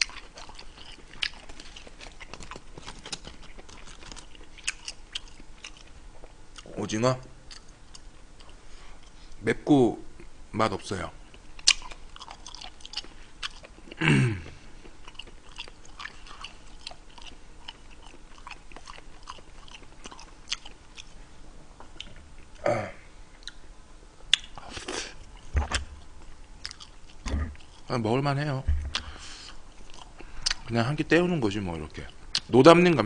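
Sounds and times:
person chewing food: 0.0s - 6.7s, 7.5s - 9.4s, 11.3s - 21.2s, 23.4s - 23.7s, 24.3s - 27.9s, 28.9s - 30.7s.

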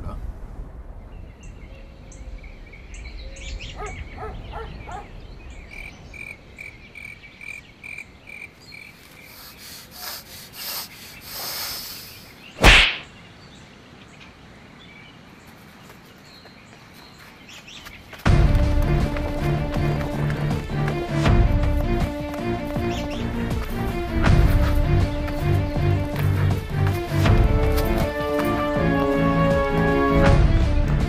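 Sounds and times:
loud sharp crack: 12.6s - 13.2s.

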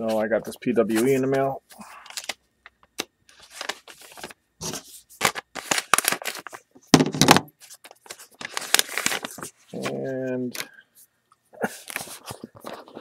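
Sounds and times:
paper envelope rustling and tearing: 2.0s - 2.4s, 3.3s - 6.6s, 7.2s - 10.1s.

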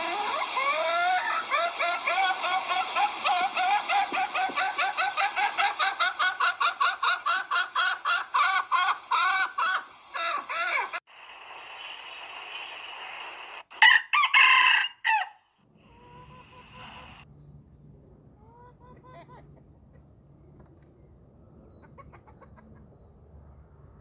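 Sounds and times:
chickens clucking: 0.0s - 11.0s, 15.8s - 17.2s, 18.4s - 20.9s, 21.7s - 23.1s
rooster crowing: 13.8s - 15.4s.

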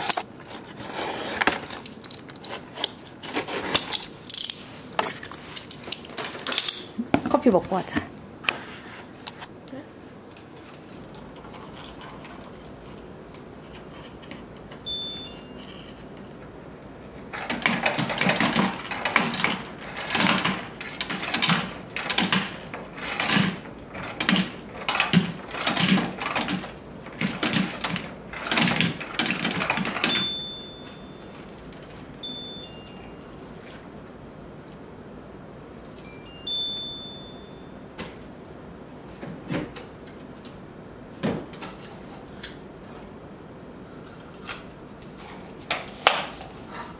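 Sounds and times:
short electronic beeps: 14.9s - 15.7s, 32.2s - 33.4s.

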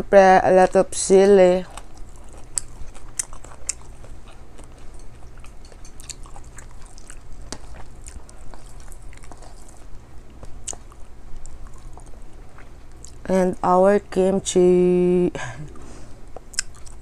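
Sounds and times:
person chewing food: 1.6s - 13.3s, 15.7s - 17.0s.

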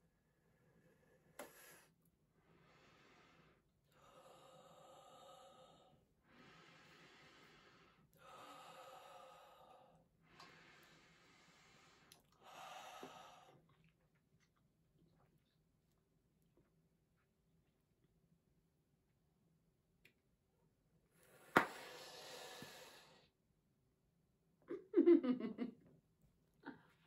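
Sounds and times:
person breathing slowly: 0.2s - 13.6s, 21.2s - 23.3s.

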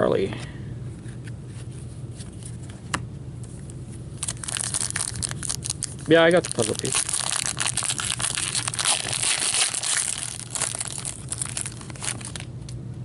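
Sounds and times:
foil wrapper crinkling and tearing: 4.2s - 12.5s.

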